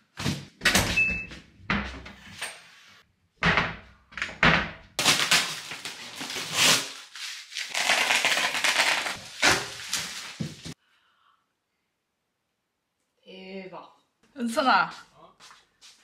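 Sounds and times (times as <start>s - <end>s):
packing tape peeling off: 5.0s - 10.7s.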